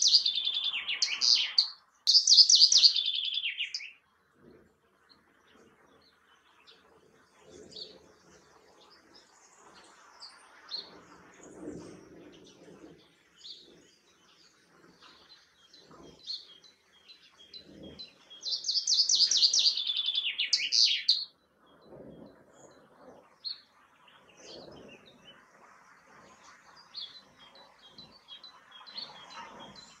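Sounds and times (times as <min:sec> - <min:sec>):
chaffinch singing: 0:00.0 - 0:04.0, 0:15.8 - 0:21.3
faint bird chirps: 0:00.0 - 0:04.6, 0:13.4 - 0:30.0.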